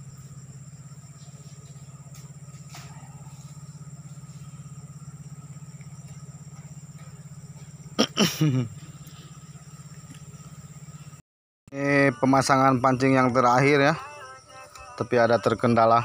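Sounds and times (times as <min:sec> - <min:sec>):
rapidly pulsing low hum: 0:00.0 - 0:11.2.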